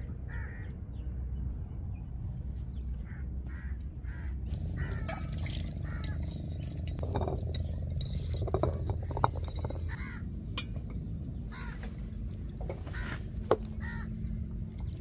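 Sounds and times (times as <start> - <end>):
crows cawing: 0.3 - 0.7, 3.0 - 6.4, 9.9 - 10.3, 11.5 - 12.0, 12.8 - 14.2.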